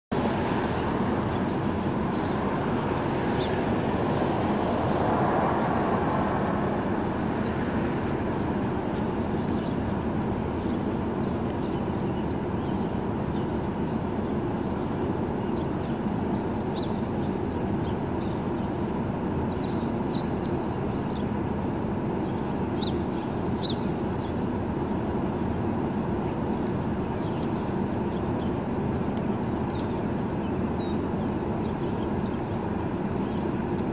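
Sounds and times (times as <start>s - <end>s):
street traffic noise: 0.1s - 33.9s
vehicle passing by: 0.2s - 9.4s.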